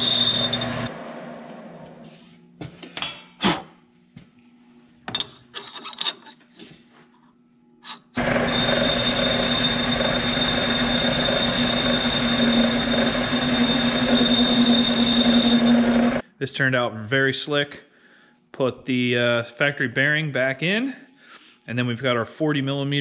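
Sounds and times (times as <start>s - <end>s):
metal lathe running: 0.0s - 1.2s, 8.2s - 16.2s.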